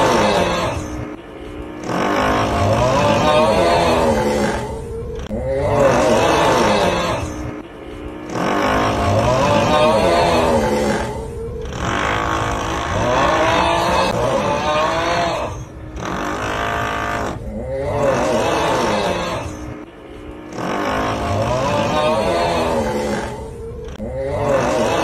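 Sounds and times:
long groaning snore: 0.0s - 25.0s
drilling: 16.0s - 17.4s.

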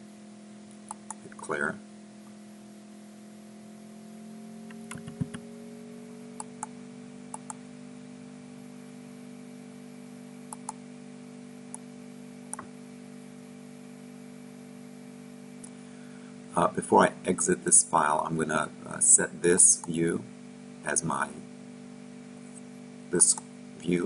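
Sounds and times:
steady multi-tone hum: 0.0s - 24.0s
computer mouse clicks: 0.8s - 1.4s, 4.7s - 5.4s, 7.3s - 7.6s, 10.5s - 10.8s.

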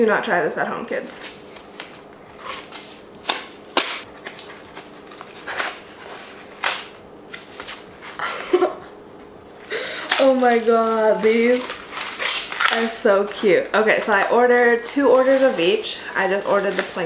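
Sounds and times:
paper packaging tearing: 1.4s - 7.9s, 10.0s - 17.0s.

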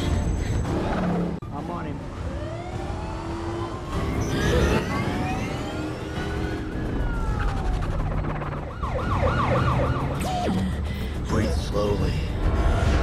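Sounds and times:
police sirens wailing: 2.0s - 10.5s
film soundtrack music: 4.0s - 13.0s.

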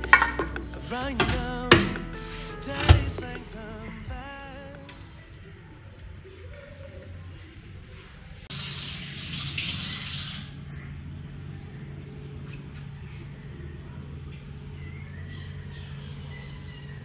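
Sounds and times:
tap water running into sink: 8.5s - 10.5s.

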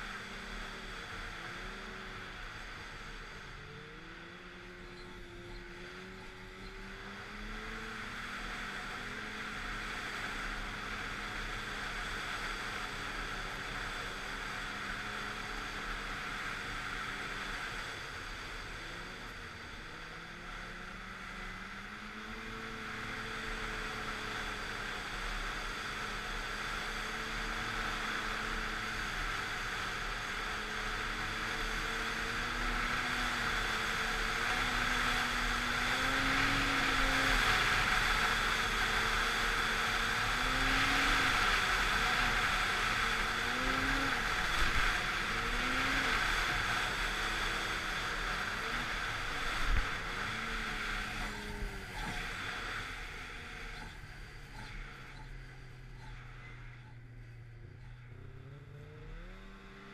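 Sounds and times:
steady rushing noise: 0.0s - 59.7s
snowmobile engine running: 0.0s - 59.9s.

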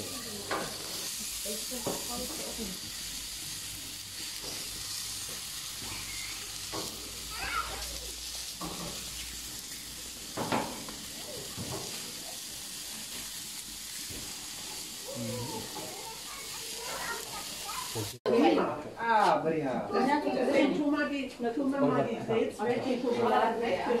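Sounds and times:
meat sizzling on a grill: 0.0s - 18.2s.

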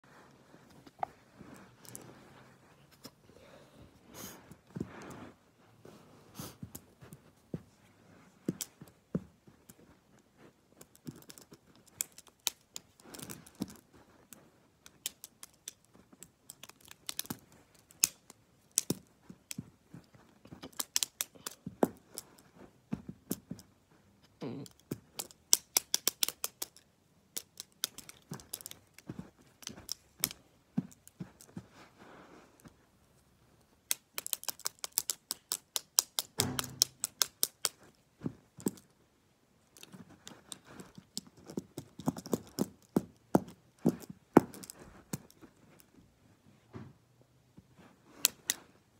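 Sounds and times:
plastic pens clicking: 1.8s - 2.0s, 8.5s - 8.9s, 10.8s - 22.5s, 24.6s - 31.6s, 33.8s - 38.0s, 39.7s - 45.8s.

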